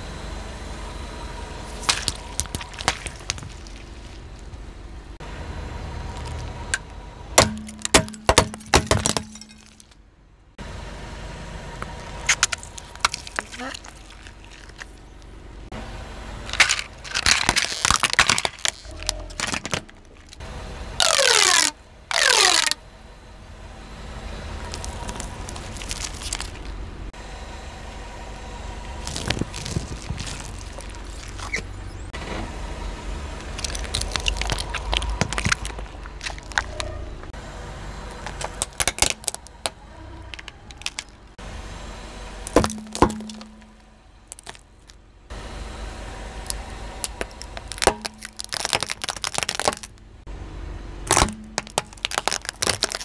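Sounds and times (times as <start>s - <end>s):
low engine rumble: 0.0s - 53.0s
tyre crushing plastic toys: 1.7s - 4.5s, 7.4s - 10.0s, 12.2s - 15.3s, 16.5s - 20.4s, 21.0s - 22.8s, 24.7s - 26.7s, 29.0s - 31.7s, 33.5s - 36.9s, 38.2s - 41.2s, 42.4s - 45.0s, 46.5s - 50.0s, 51.1s - 53.0s.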